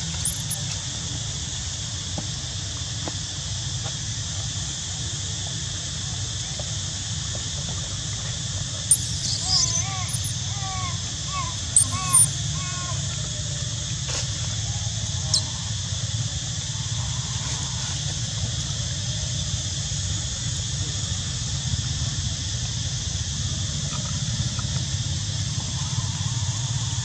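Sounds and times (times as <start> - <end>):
even hiss: 0.0 - 27.0
high squeak falling in pitch: 0.2 - 0.6, 8.9 - 10.4, 11.8 - 12.3.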